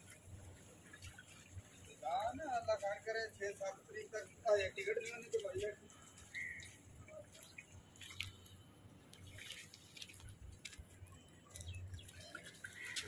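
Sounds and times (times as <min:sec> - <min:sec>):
footsteps in mud: 0:05.0 - 0:13.0.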